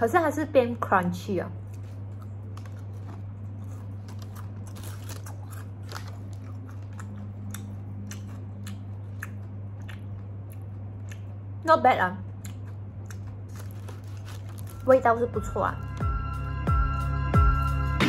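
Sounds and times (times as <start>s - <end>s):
steady low hum: 0.0s - 18.0s
crunchy cookie being chewed: 1.6s - 11.5s, 12.3s - 15.0s.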